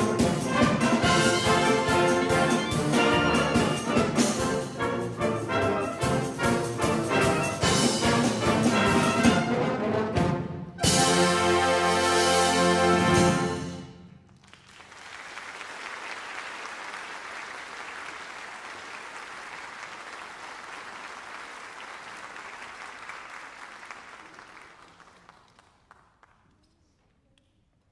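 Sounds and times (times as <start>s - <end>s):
audience applauding: 14.3s - 26.5s.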